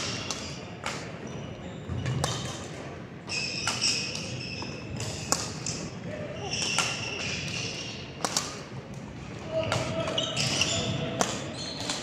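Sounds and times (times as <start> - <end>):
shoes squeaking on court floor: 0.0 - 8.4, 9.5 - 12.0
racket striking shuttlecock: 5.0 - 5.8, 6.6 - 8.6.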